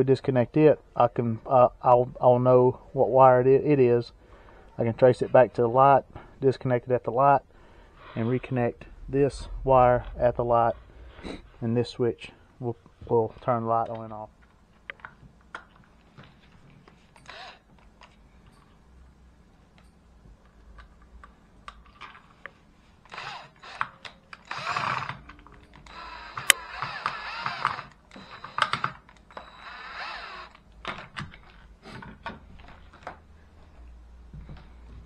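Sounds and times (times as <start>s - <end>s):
cordless drill running: 17.2s - 17.6s, 23.0s - 25.2s, 25.8s - 30.6s.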